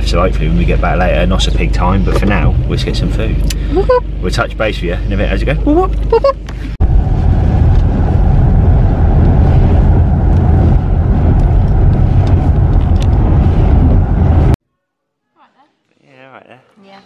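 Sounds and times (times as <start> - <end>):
car rumble on wet road: 6.8 - 14.6.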